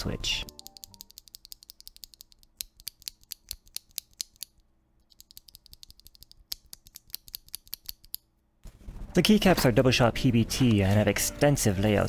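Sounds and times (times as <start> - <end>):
keyboard switch clicking: 0.4 - 4.5.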